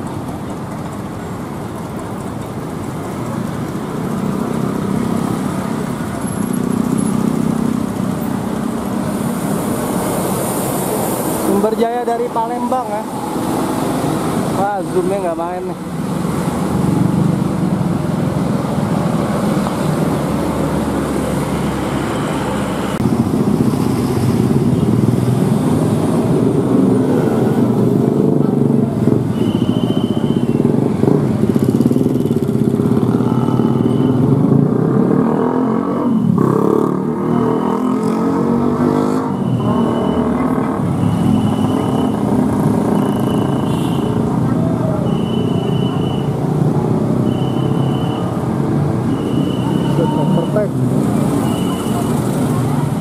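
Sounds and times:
traffic engines passing: 0:00.0 - 0:53.0
short high beep: 0:29.4 - 0:30.7, 0:33.4 - 0:34.4, 0:39.2 - 0:44.2, 0:45.0 - 0:46.4, 0:47.2 - 0:48.4, 0:49.1 - 0:50.7, 0:51.4 - 0:52.2.

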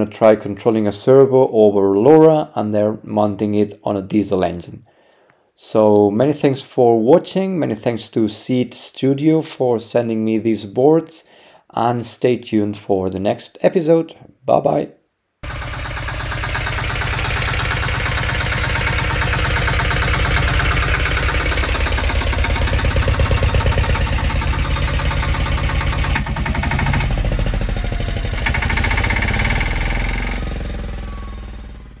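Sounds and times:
diesel engine running: 0:15.4 - 0:32.0.

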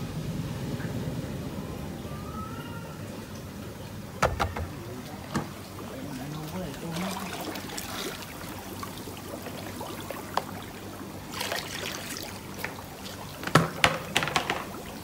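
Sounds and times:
water trickling into plastic basin: 0:03.1 - 0:15.0
sharp knocks: 0:04.2 - 0:05.5.

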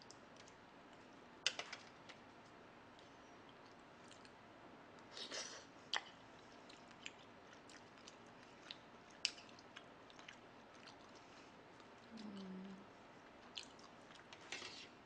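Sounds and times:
person chewing: 0:05.9 - 0:14.4.

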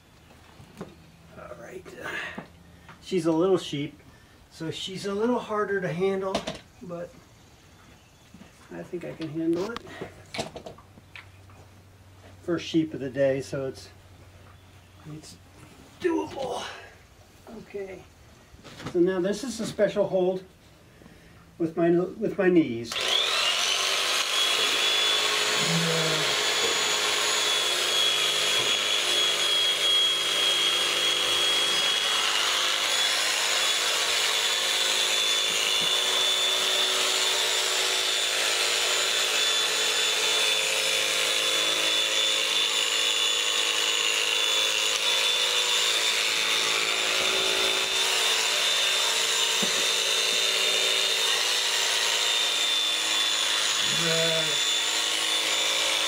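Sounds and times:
electric shears whining: 0:22.9 - 0:56.0.

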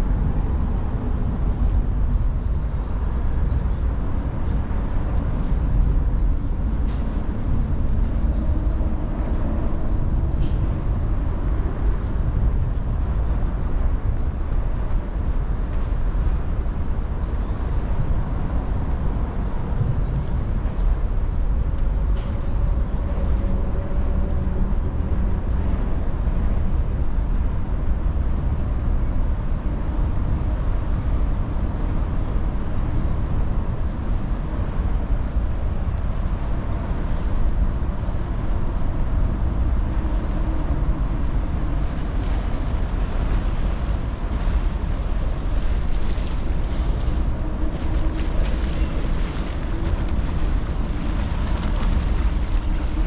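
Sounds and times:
low rumble of traffic: 0:00.0 - 0:53.0
passing engine hum: 0:17.1 - 0:53.0.

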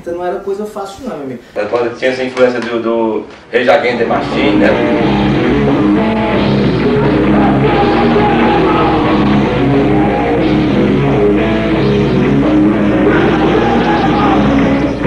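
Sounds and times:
rock band playing: 0:04.1 - 0:15.0
person singing: 0:04.3 - 0:11.4, 0:12.3 - 0:15.0.

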